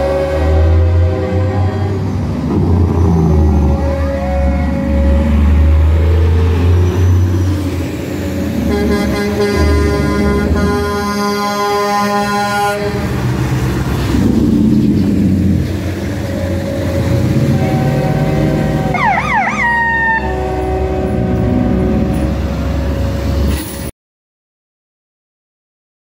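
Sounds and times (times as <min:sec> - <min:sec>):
multi-tone horn chord: 0:00.0 - 0:02.2, 0:08.6 - 0:13.1, 0:16.5 - 0:22.9
emergency siren: 0:00.0 - 0:13.1, 0:15.5 - 0:23.4
road noise on wet street: 0:00.0 - 0:23.9
truck engines running: 0:00.0 - 0:23.9.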